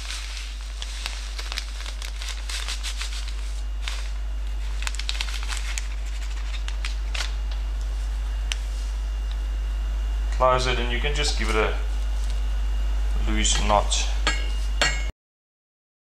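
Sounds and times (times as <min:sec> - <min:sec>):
plastic bag crinkling: 0:00.0 - 0:09.4, 0:10.6 - 0:13.9
steady low hum: 0:00.0 - 0:15.1.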